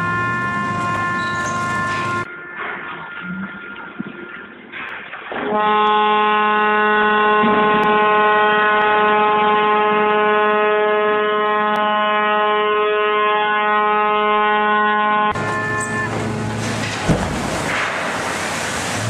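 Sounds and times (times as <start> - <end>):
ship's horn blast: 0.0 - 3.6, 5.4 - 17.6.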